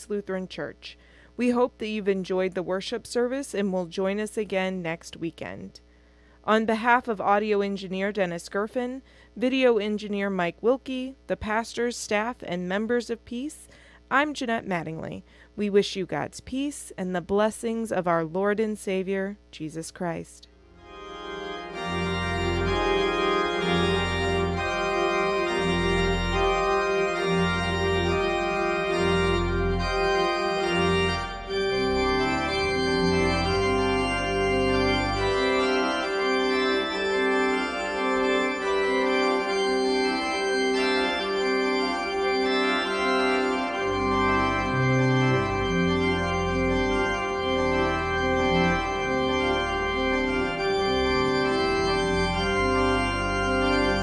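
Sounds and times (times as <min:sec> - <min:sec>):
organ music: 0:20.6 - 0:54.0.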